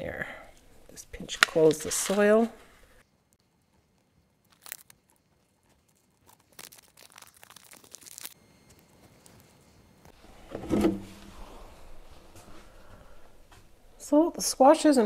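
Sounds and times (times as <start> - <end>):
soft crunching potting mix: 0.0 - 10.5.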